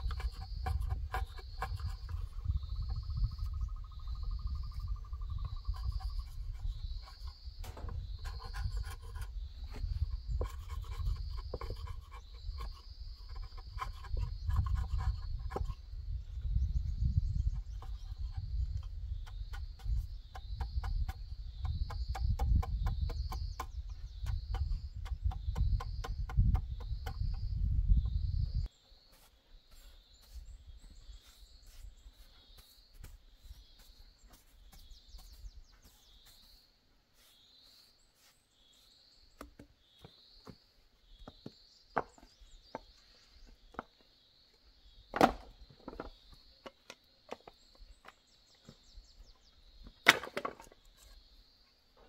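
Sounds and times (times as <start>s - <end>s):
straw broom sweeping: 31.2s - 33.2s, 37.1s - 39.0s.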